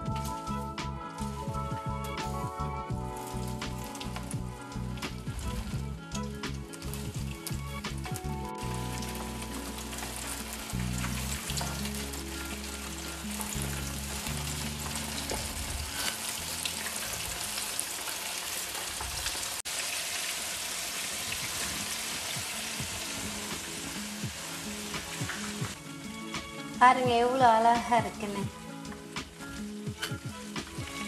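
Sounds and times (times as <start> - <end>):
fish frying in hot oil: 0.0 - 31.0.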